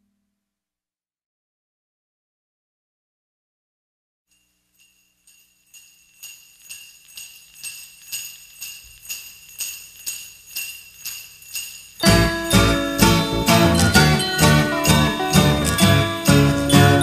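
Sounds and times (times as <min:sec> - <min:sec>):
jingle bells shaken in a beat: 0:04.3 - 0:17.0.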